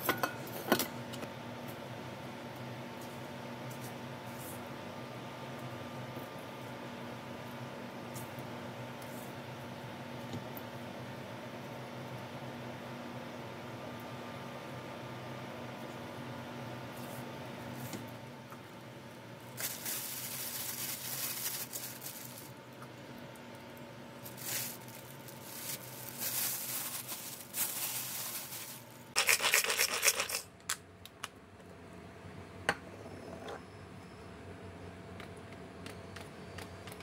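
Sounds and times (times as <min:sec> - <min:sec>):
kitchen scraping and rubbing: 0:24.3 - 0:30.4.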